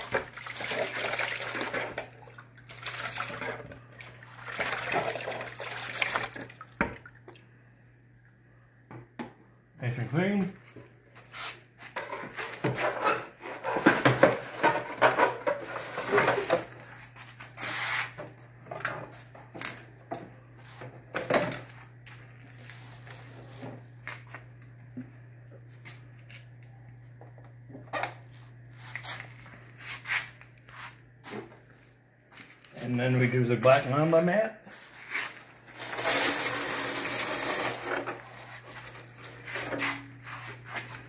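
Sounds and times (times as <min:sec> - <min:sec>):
plastic sluice box clattering: 0:00.0 - 0:06.6, 0:35.8 - 0:39.8
low steady hum: 0:00.0 - 0:11.3, 0:18.2 - 0:41.0.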